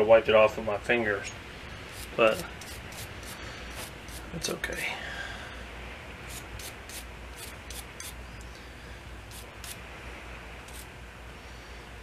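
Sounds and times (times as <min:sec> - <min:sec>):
steady low hum: 0:00.0 - 0:12.0
brush scrubbing small metal parts: 0:01.9 - 0:04.6.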